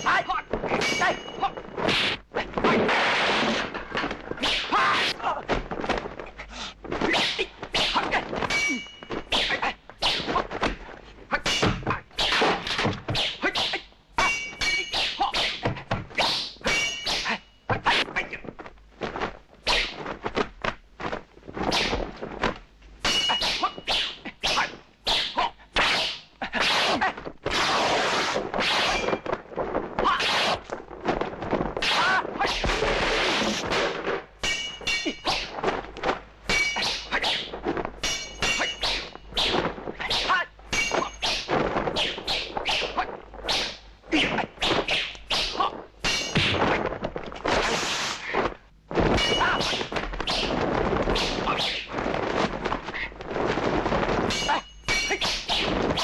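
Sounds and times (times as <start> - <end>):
sword blades clashing: 0.0 - 2.2, 7.2 - 10.4, 11.4 - 15.7, 16.3 - 18.1, 23.0 - 26.2, 34.4 - 35.8, 36.5 - 46.9, 49.1 - 50.5, 54.3 - 56.0.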